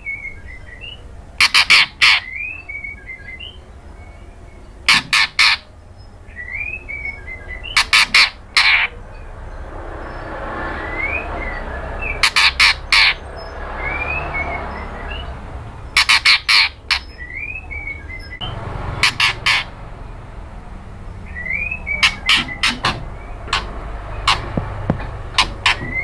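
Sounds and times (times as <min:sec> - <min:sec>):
bird harsh calls: 0:00.0 - 0:26.0
faint rising chirps: 0:08.9 - 0:15.9.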